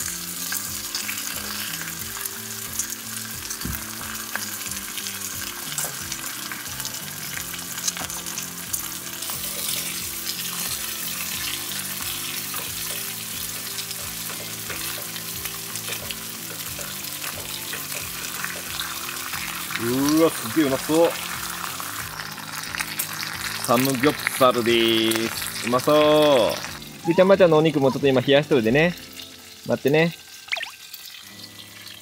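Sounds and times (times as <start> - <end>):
meat sizzling in a grill pan: 0.0 - 32.0
tongs clicking against pan: 12.4 - 19.5.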